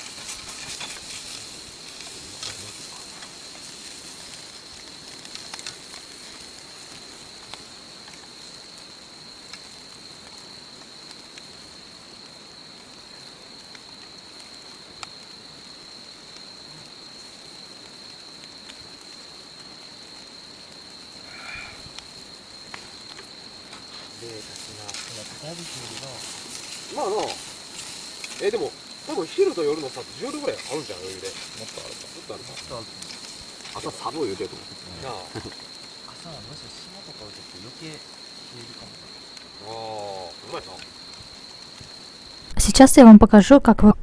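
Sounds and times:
sharp pops and clicks: 0.0s - 8.4s
meat sizzling on a grill: 0.0s - 42.5s
crackling wood fire: 0.0s - 42.6s
night insects chirring: 0.0s - 43.9s.

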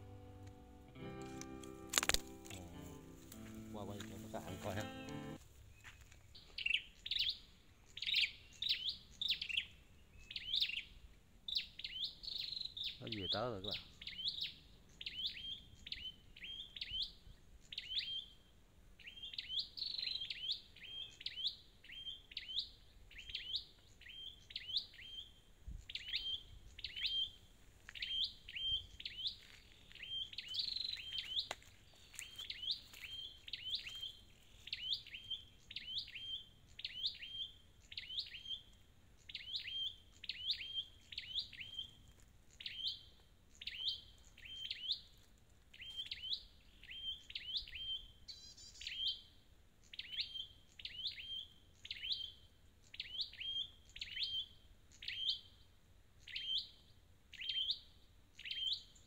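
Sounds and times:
bird calls sharp high notes: 0.0s - 5.4s.

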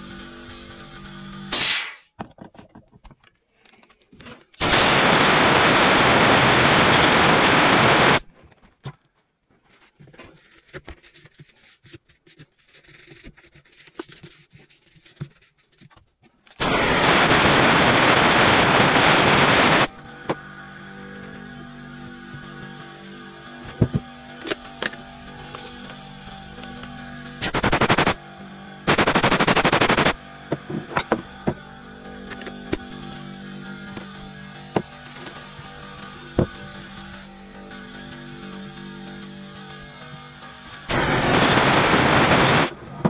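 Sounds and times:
compressed air blasts: 1.5s - 2.1s, 4.6s - 8.2s, 16.6s - 19.9s, 27.4s - 28.2s, 28.9s - 30.2s, 40.9s - 42.7s.

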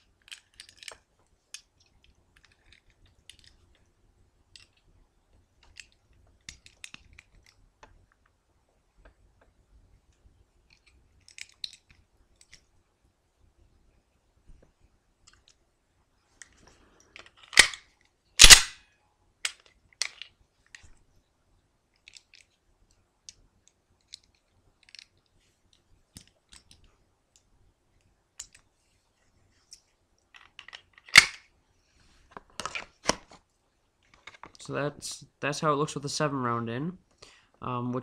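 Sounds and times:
pistol magazine metallic clicks: 17.5s - 17.8s, 18.4s - 18.8s, 31.1s - 31.4s.

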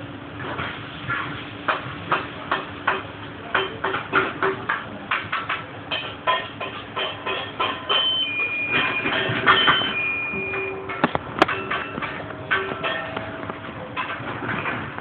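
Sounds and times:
metal utensils clinking on pots: 2.9s - 15.0s
steady low hum: 4.6s - 15.0s.

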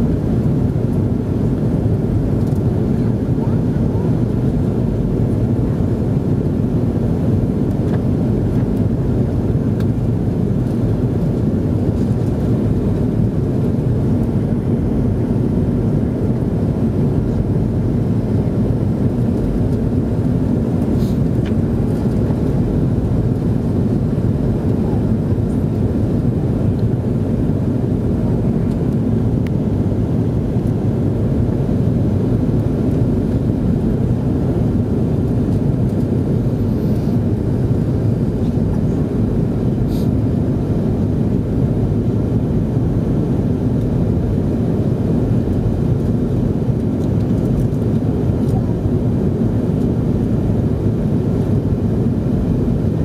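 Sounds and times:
airliner jet engine drone: 0.0s - 53.0s
airflow noise: 16.8s - 27.8s, 39.7s - 40.4s.

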